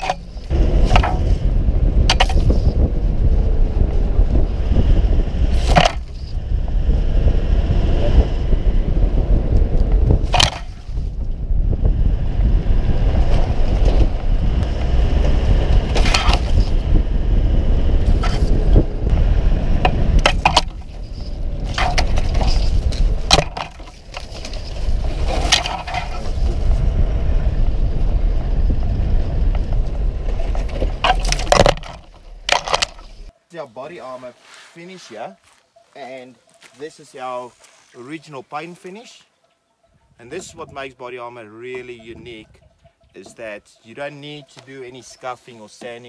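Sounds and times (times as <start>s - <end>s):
branches scraping bodywork: 0.0s - 7.1s, 9.8s - 11.2s, 12.8s - 17.0s, 17.9s - 26.9s, 29.5s - 39.7s
vehicle engine rumble: 0.0s - 33.3s.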